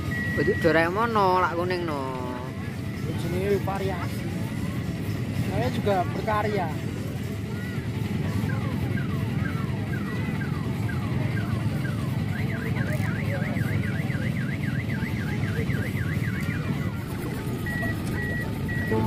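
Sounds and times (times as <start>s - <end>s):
electronic alarm siren: 0.0s - 1.9s, 8.2s - 19.0s
low background hubbub: 0.0s - 19.0s.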